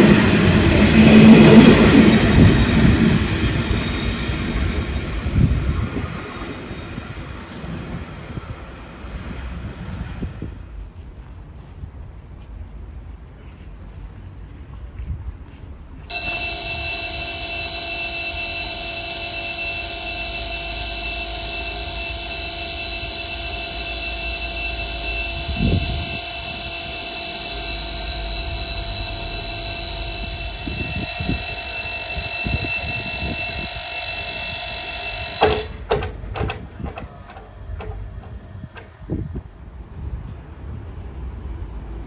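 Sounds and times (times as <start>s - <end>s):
level crossing warning bell: 16.1s - 38.9s.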